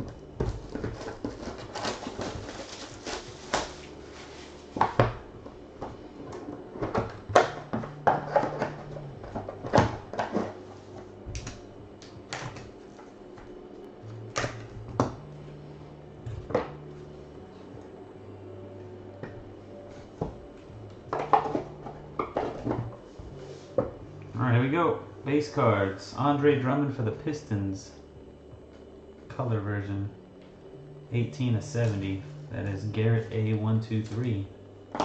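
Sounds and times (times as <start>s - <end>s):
cardboard boxes tapping and scraping: 0.2s - 5.2s
plastic wrap crinkling: 0.6s - 4.7s.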